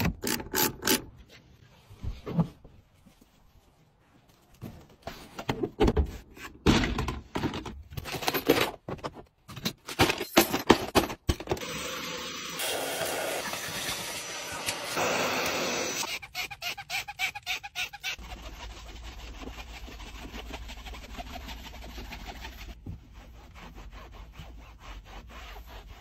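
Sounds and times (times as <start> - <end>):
hard items knocking and clattering: 5.3 - 11.7
vacuum cleaner running: 11.6 - 16.0.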